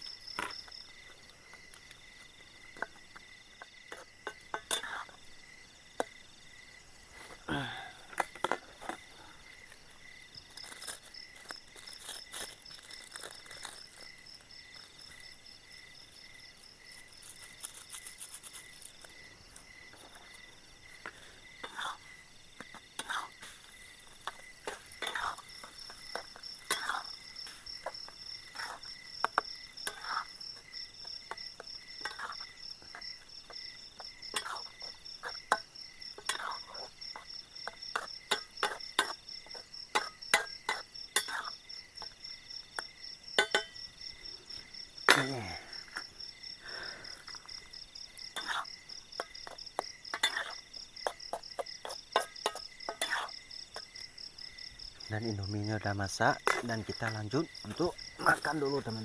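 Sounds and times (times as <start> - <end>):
crickets chirring: 0.0 - 59.0
cooking pot and utensils clicking: 42.8 - 43.8.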